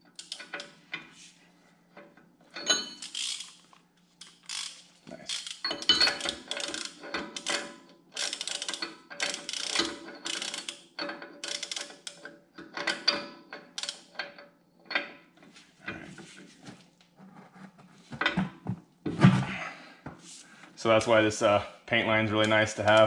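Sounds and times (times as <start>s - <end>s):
ratchet wrench clicking: 3.0s - 3.6s, 4.2s - 7.6s, 8.2s - 10.8s, 11.4s - 12.2s.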